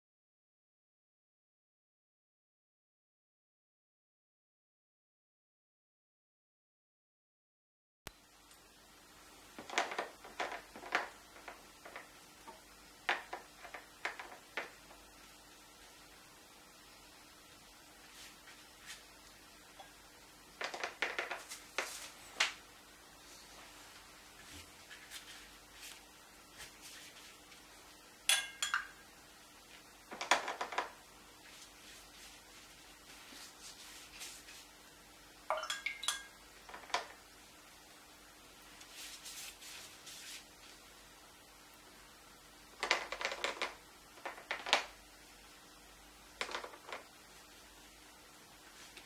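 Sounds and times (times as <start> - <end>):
faint room hiss: 8.1 - 49.0
paintbrush strokes on paper: 18.0 - 19.2, 23.2 - 27.8, 31.4 - 34.8, 38.7 - 40.8.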